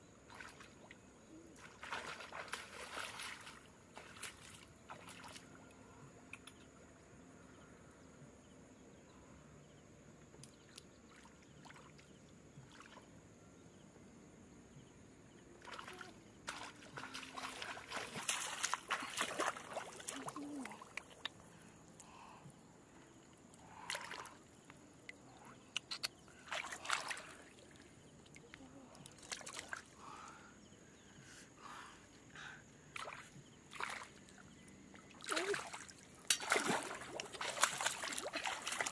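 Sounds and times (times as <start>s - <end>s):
water sloshing and splashing: 0.2s - 5.6s, 15.6s - 21.5s, 23.1s - 30.1s, 32.9s - 38.9s.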